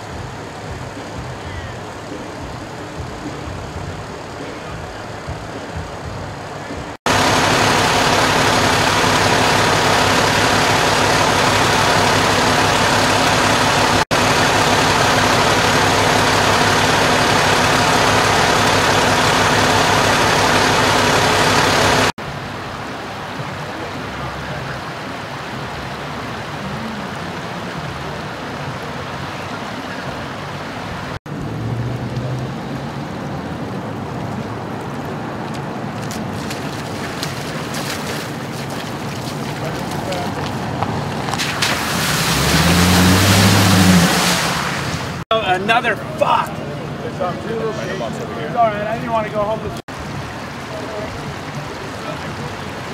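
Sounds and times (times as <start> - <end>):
diesel engine idling: 0.0 - 22.5.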